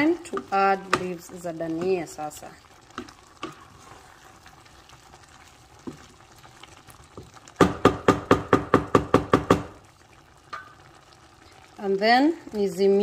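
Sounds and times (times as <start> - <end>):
wooden spoon knocking metal pot: 0.3 - 2.0, 7.2 - 9.8, 10.5 - 10.8.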